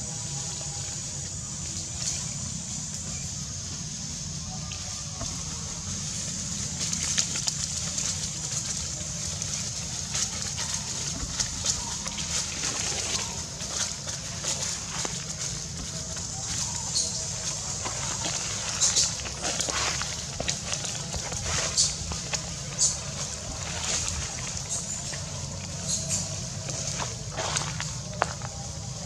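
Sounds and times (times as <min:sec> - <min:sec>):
dry leaves rustling and crackling: 0:00.0 - 0:29.0
steady high hiss: 0:00.0 - 0:29.0.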